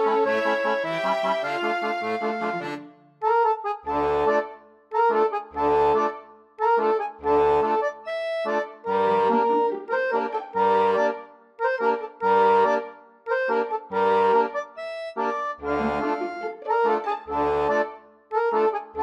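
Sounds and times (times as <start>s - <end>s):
reedy melody: 0.0s - 19.0s
low bass notes: 15.5s - 17.8s.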